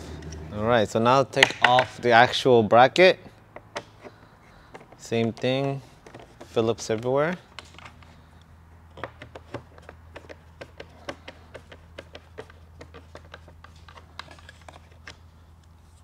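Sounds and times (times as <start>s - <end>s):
low hum: 0.0s - 1.0s.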